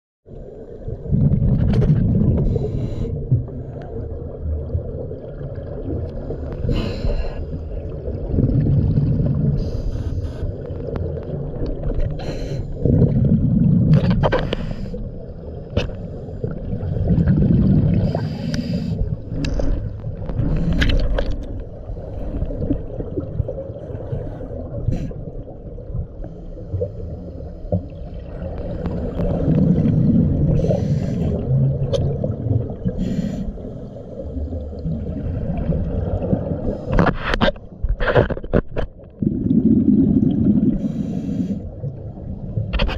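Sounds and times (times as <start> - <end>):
exhaled bubbles gurgling: 0.3 - 42.9
regulator inhale hiss: 2.4 - 3.9, 6.4 - 7.6, 9.6 - 10.6, 12.2 - 12.8, 14.4 - 15.1, 18.0 - 19.2, 30.6 - 31.4, 32.9 - 34.3, 40.8 - 41.7.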